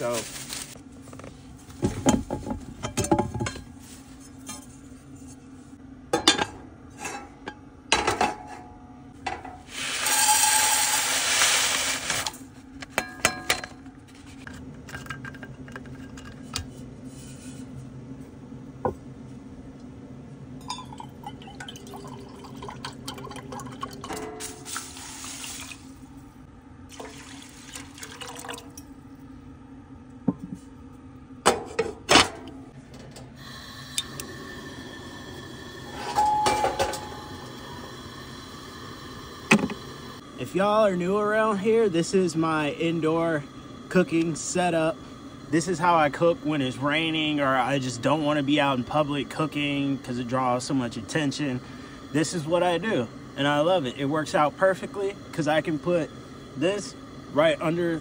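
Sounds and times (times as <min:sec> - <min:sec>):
water pouring into saucepan: 0:20.8 - 0:26.0, 0:26.9 - 0:28.9.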